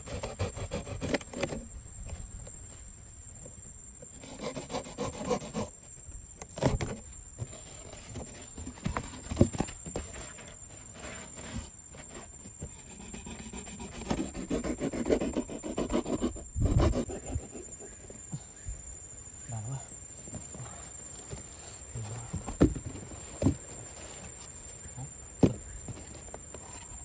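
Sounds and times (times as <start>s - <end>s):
box cutter rasping through cardboard: 0.0s - 1.7s, 4.1s - 5.8s, 6.6s - 17.7s.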